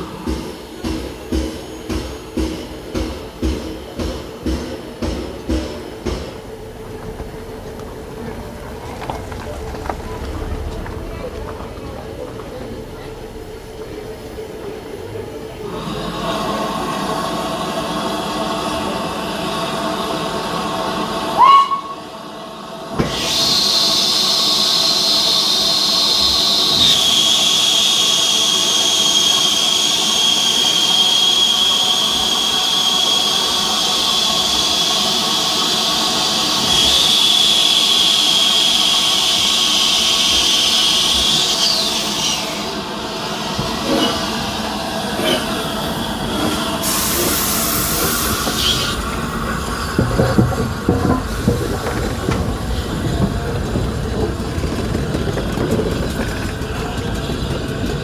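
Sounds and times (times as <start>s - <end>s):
steam locomotive blowing off steam: 0.0s - 58.0s
short sharp steam hiss: 45.2s - 49.0s.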